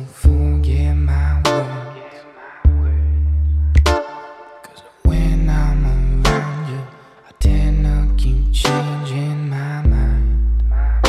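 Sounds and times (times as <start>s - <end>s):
deep sustained bass chord: 5.1s - 6.3s.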